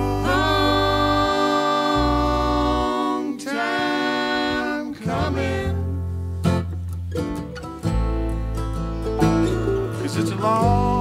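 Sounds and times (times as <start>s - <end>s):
voices singing in harmony: 0.0s - 6.2s.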